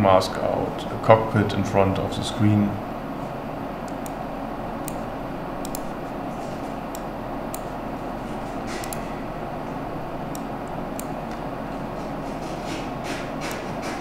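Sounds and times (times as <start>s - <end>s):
room noise hiss with low hum: 0.0s - 14.0s
computer mouse clicks: 3.9s - 4.2s, 5.6s - 5.9s, 6.9s - 7.7s, 8.8s - 9.0s.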